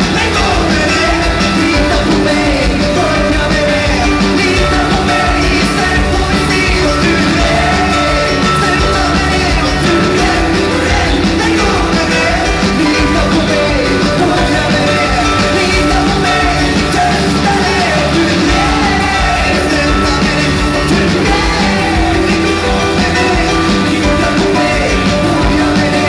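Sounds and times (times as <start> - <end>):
man singing strained: 0.0 - 26.0
rock band playing: 0.0 - 26.0.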